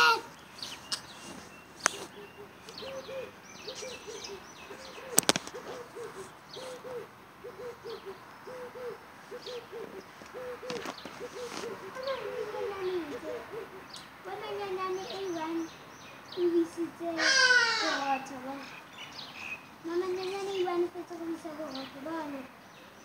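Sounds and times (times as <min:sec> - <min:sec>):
dove cooing: 0:00.0 - 0:15.6, 0:16.4 - 0:18.8
small birds chirping faintly: 0:00.0 - 0:23.0.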